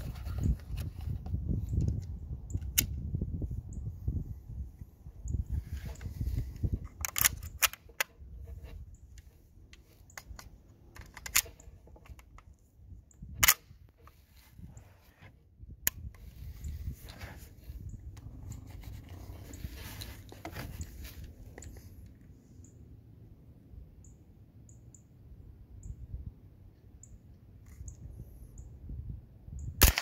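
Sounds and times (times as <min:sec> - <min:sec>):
gun action metallic clicks: 0:06.9 - 0:08.2, 0:10.1 - 0:12.4, 0:13.4 - 0:13.7
suppressed gunshots: 0:29.8 - 0:30.0.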